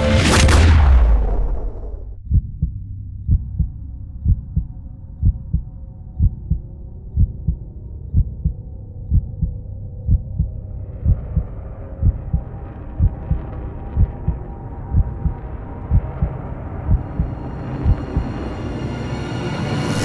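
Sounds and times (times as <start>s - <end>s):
low steady drone: 2.0s - 20.0s
heartbeat double thump: 2.2s - 5.6s, 6.2s - 6.6s, 7.2s - 7.6s, 8.2s - 18.4s.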